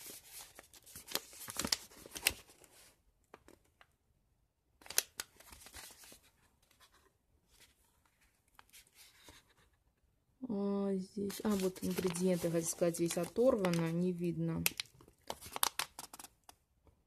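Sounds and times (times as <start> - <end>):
packaging rustling and crinkling: 11.3 - 14.0, 14.6 - 16.5.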